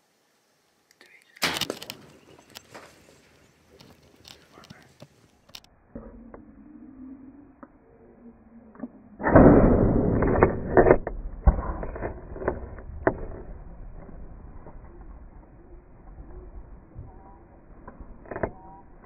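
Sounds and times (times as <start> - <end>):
bow shot burst: 1.4 - 2.0, 9.2 - 14.6.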